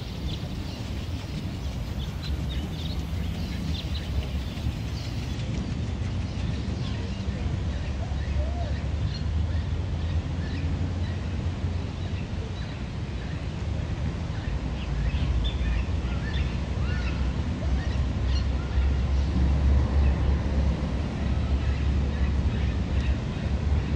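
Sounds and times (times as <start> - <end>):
birds chirping: 0.0 - 7.0
steady low rumble: 0.0 - 7.8.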